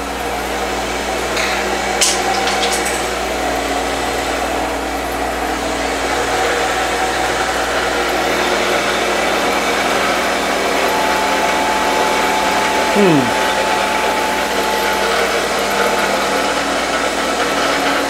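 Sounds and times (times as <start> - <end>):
wood lathe motor humming: 6.7 - 18.0.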